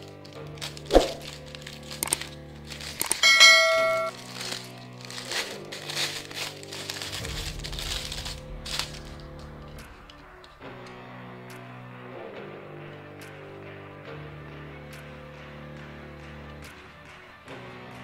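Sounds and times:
plastic bag crinkling: 0:00.0 - 0:10.3
soft background music: 0:00.0 - 0:18.0
bell-like ding: 0:03.2 - 0:04.1.

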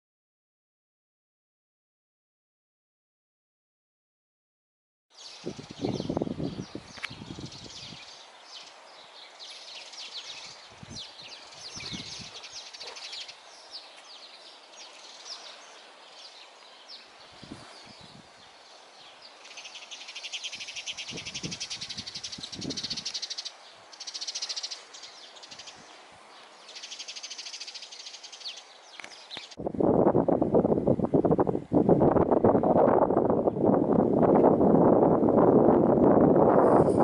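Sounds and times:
songbirds chirping and trilling: 0:05.1 - 0:29.6
low wind rumble on microphone: 0:05.2 - 0:12.8, 0:13.5 - 0:27.0, 0:27.7 - 0:37.0.

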